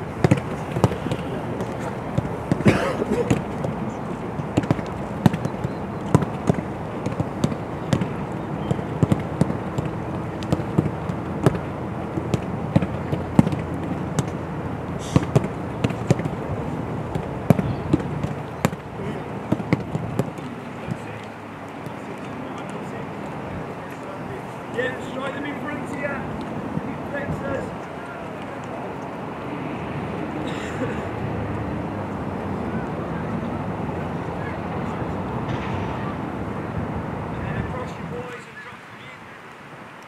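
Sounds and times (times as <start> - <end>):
footballs thudding: 0.0 - 22.9
outdoor background rush: 0.0 - 40.0.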